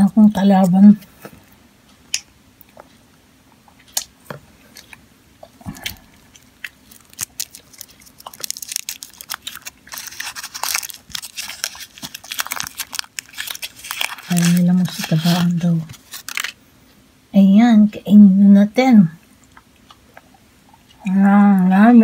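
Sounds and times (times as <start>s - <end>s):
foil wrapper crinkling: 6.4s - 16.6s.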